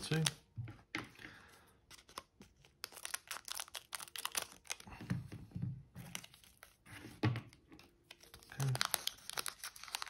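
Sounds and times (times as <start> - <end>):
foil wrapper crinkling: 2.1 - 4.9, 8.1 - 10.0.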